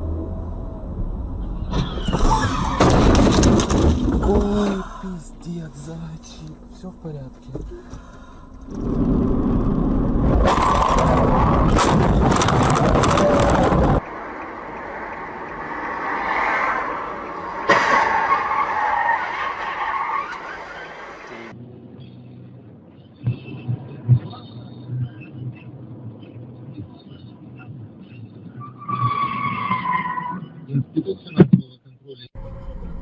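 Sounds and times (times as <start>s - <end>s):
road noise inside car: 0.0s - 33.0s
rough rushing and crackling: 1.6s - 21.6s.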